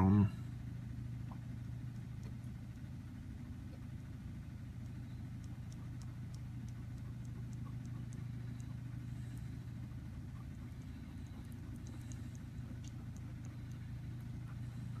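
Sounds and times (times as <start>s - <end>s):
low mechanical hum: 0.0s - 15.0s
faint light ticks: 4.7s - 9.5s, 10.3s - 15.0s.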